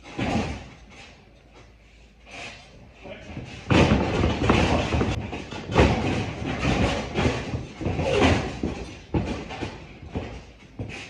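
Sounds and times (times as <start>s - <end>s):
heavy running steps on ring mat: 0.0s - 11.0s
loud slams on ring boards: 3.2s - 11.0s
body impacts on wrestling ring: 3.5s - 11.0s.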